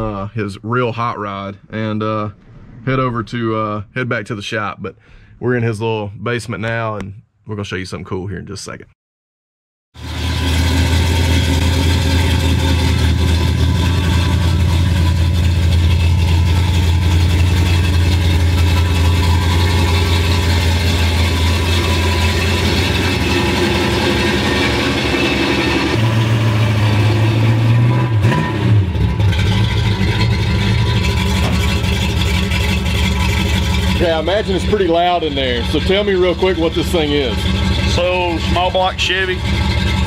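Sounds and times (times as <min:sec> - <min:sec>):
car engine idling loud: 0:10.0 - 0:27.9, 0:28.9 - 0:40.0.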